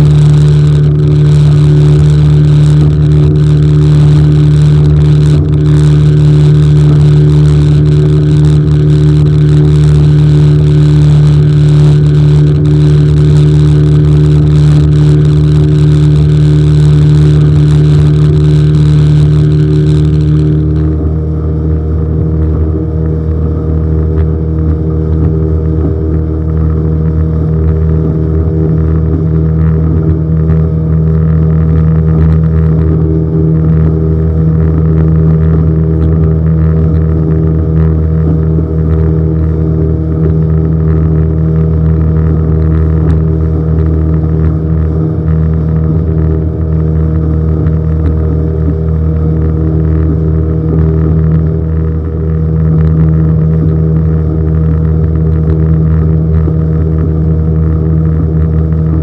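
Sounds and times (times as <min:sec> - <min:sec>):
boat engine running: 0:00.0 - 0:59.0.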